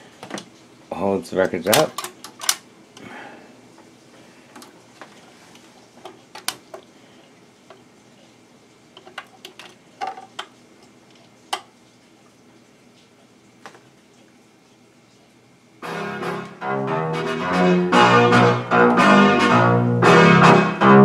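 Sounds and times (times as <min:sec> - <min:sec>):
record changer clicks and knocks: 0:01.5 - 0:02.6.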